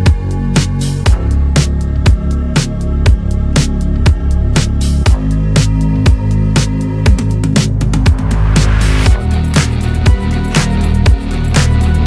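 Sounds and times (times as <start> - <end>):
electronic music with heavy bass: 0.0 - 12.0
hissing swell: 7.6 - 9.8.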